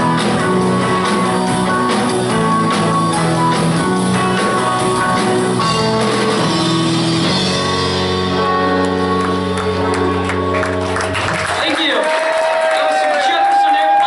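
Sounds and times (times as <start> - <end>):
live rock band playing: 0.0 - 11.9.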